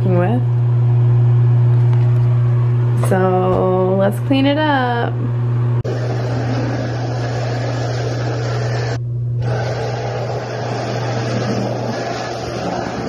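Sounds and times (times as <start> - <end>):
low hum: 0.0 - 13.0
cordless vacuum running: 5.8 - 13.0.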